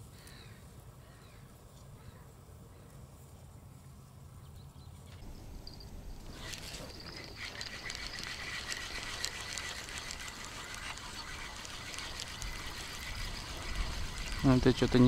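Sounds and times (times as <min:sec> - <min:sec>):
fishing reel whirring and clicking: 0:05.2 - 0:15.0.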